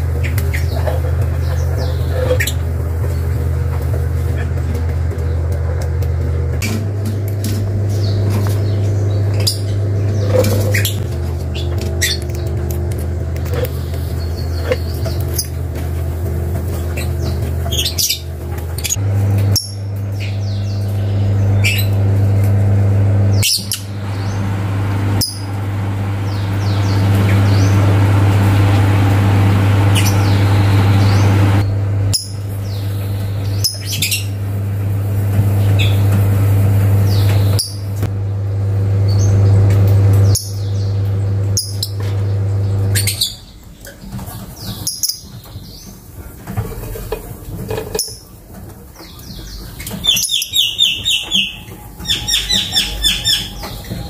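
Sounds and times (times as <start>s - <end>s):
lovebirds chirping: 0.0s - 3.4s, 7.8s - 16.1s, 23.3s - 38.0s, 47.8s - 48.4s, 49.0s - 54.0s
steady low hum: 0.0s - 54.0s.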